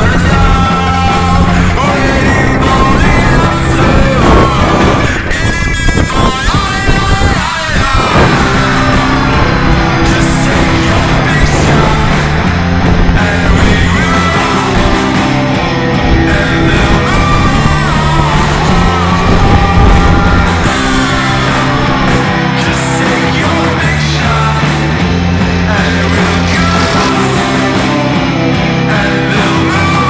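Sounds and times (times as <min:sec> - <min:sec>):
rock music with singing: 0:00.0 - 0:30.0.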